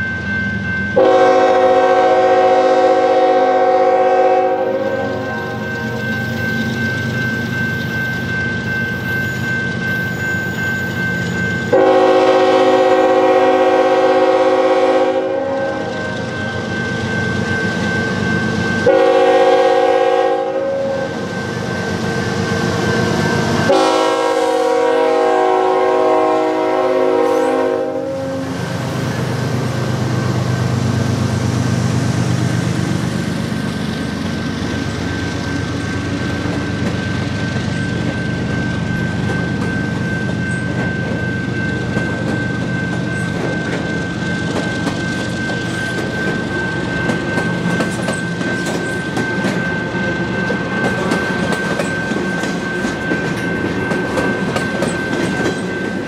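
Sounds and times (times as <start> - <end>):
freight train rumbling: 0.0 - 56.0
locomotive air horn blasts: 1.0 - 5.5, 11.7 - 15.9, 18.8 - 21.2, 23.7 - 28.6.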